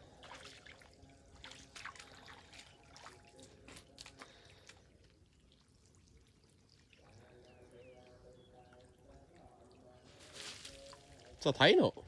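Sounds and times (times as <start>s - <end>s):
small water splashes: 0.0s - 7.8s
water dripping and trickling: 0.0s - 12.0s.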